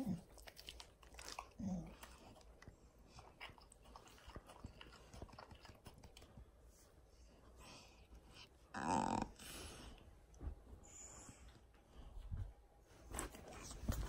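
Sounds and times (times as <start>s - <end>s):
dog licking and lip smacking: 0.1s - 6.4s.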